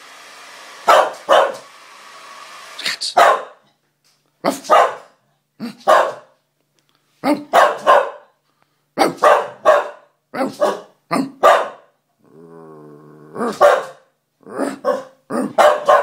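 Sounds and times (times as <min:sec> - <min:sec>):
dog barking: 0:00.8 - 0:01.7, 0:03.1 - 0:03.6, 0:04.4 - 0:06.4, 0:07.2 - 0:08.4, 0:09.0 - 0:12.0, 0:13.4 - 0:16.0
dog growling: 0:12.2 - 0:13.7, 0:14.4 - 0:15.6.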